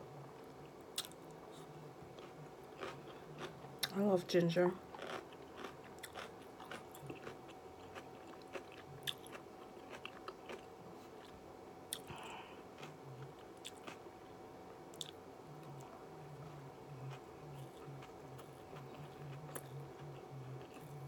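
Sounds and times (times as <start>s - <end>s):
close-up chewing crunches: 1.0s - 4.0s, 4.9s - 14.0s.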